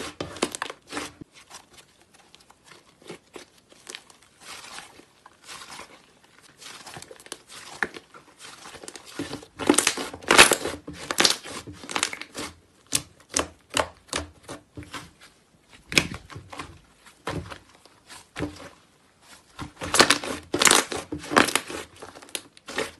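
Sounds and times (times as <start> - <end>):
slime clicking and crackling: 2.3 - 14.5, 19.7 - 22.9.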